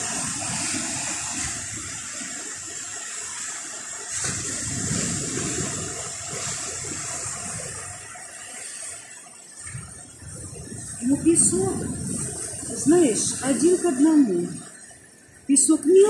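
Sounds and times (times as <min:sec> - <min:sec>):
surf breaking on beach: 0:00.0 - 0:14.6.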